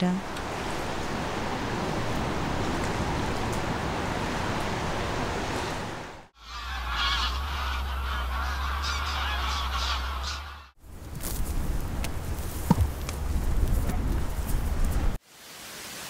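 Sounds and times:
sea surf rushing: 0.2s - 6.3s
large birds calling in flight: 6.4s - 10.7s.

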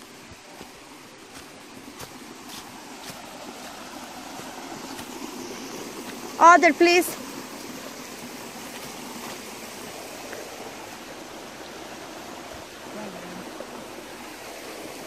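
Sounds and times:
creek water running over stones: 0.0s - 15.0s.

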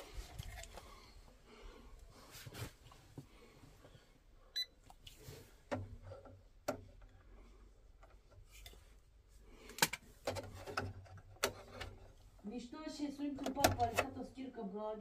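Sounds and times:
handling clicks and knocks: 9.7s - 12.2s.

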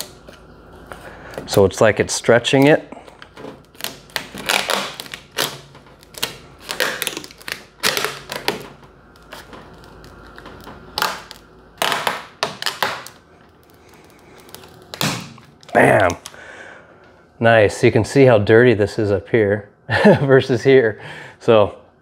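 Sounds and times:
plastic film crackling: 2.4s - 16.4s.

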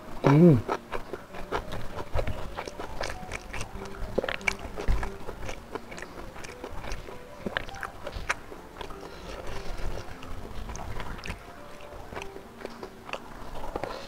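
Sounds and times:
wet chewing and mouth smacks: 0.2s - 14.0s.

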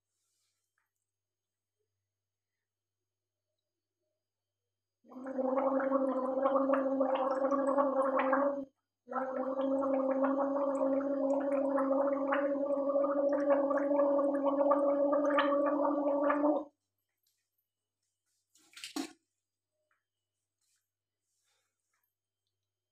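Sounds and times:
woman gargling water: 5.1s - 16.7s.

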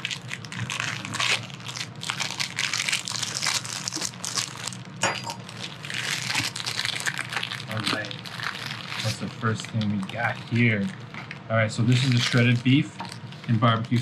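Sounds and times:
plastic bag crinkling: 0.0s - 14.0s.

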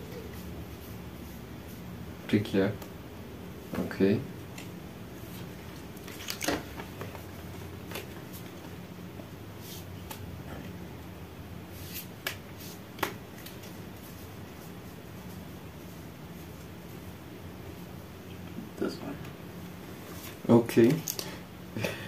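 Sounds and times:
steady low hum: 0.0s - 22.0s
playing cards clicking and rustling: 4.5s - 10.4s, 11.8s - 14.2s, 20.2s - 21.3s.

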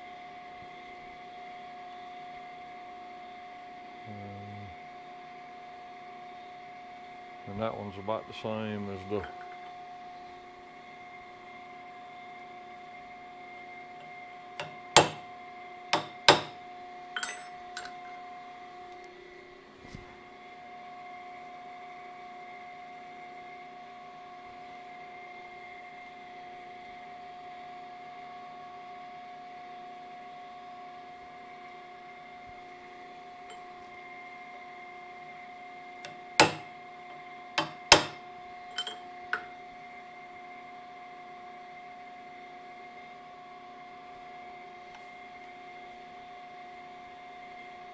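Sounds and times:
steady machine hum: 0.0s - 47.9s
machine hum: 3.3s - 5.2s
hammer striking steel punch: 14.6s - 15.2s, 16.0s - 16.6s, 36.1s - 36.7s, 37.6s - 38.2s.

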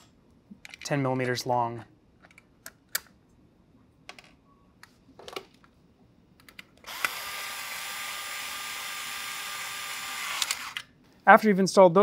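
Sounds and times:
cordless drill driving screw: 6.9s - 10.9s.

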